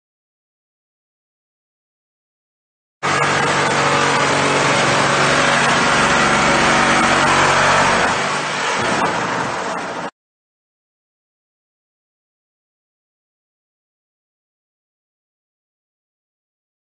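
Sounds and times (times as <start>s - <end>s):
low motor hum: 3.0s - 10.1s
power tool cutting metal: 3.0s - 10.1s.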